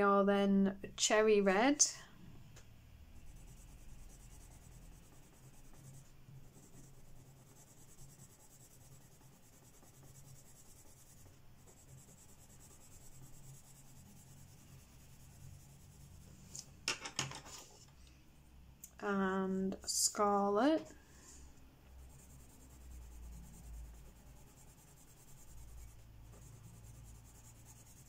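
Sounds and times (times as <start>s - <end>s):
pencil scribbling on paper: 3.2s - 16.2s, 22.0s - 28.0s.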